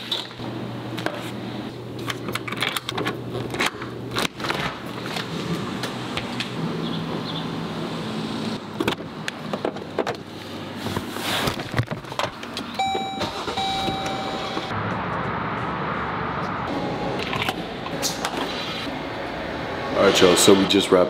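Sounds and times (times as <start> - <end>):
car electronic warning chime: 12.8 - 14.7.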